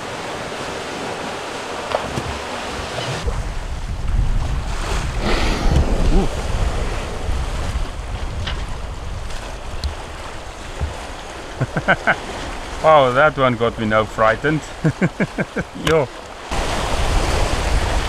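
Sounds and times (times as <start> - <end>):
sea wash: 0.0 - 18.0
wind buffeting microphone: 2.2 - 11.6, 16.5 - 18.0
low wind rumble: 2.6 - 18.0.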